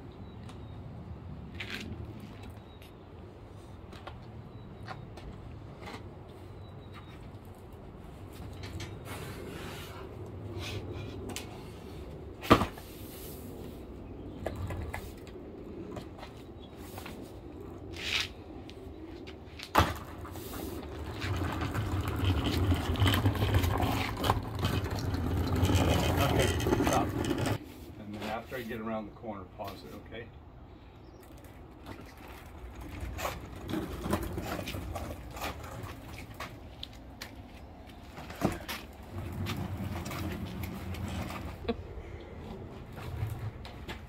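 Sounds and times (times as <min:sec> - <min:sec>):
casters rolling over asphalt: 0:00.4 - 0:30.1, 0:31.0 - 0:44.0.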